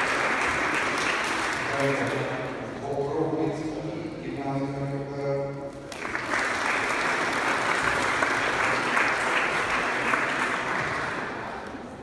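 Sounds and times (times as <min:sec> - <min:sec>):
audience applauding: 0:00.0 - 0:02.3, 0:05.9 - 0:11.5
man speaking: 0:01.7 - 0:05.7.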